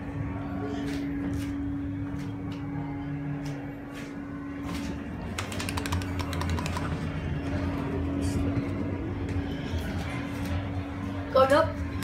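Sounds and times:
elevator hum: 0.0s - 12.0s
rapid sharp clicks: 5.4s - 7.0s.

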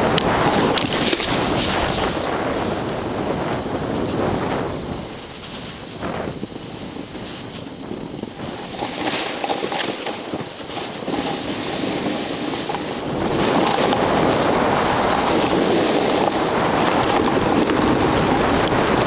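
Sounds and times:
wind buffeting microphone: 0.0s - 19.0s
edges scraping hard snow: 0.3s - 3.0s, 8.2s - 17.9s.

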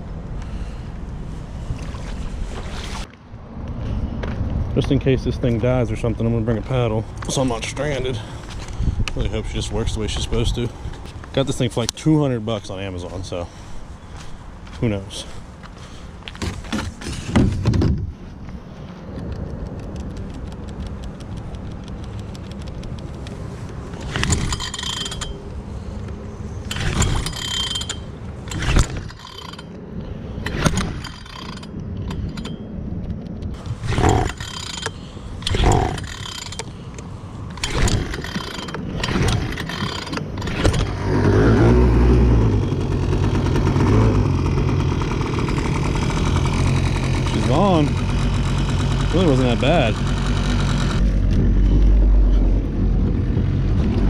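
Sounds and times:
recoil starter cord yanks: 24.0s - 25.4s, 26.6s - 29.8s, 30.4s - 32.6s, 33.6s - 41.2s
outboard engine idling: 42.8s - 51.0s.

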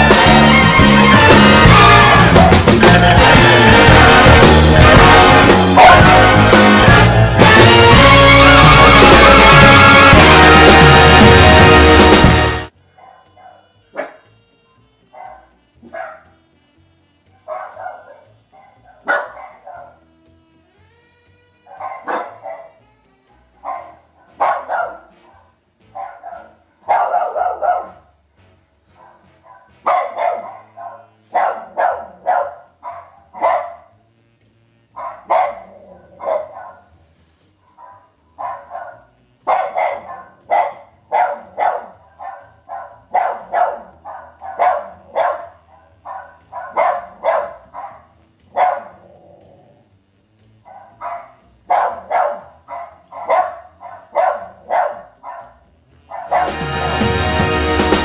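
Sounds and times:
dog barking: 2.1s - 2.8s, 5.7s - 6.4s, 12.9s - 14.3s, 15.1s - 16.4s, 17.3s - 20.1s, 21.6s - 28.2s, 28.8s - 34.2s, 34.9s - 37.0s, 37.6s - 49.5s, 50.6s - 56.6s.

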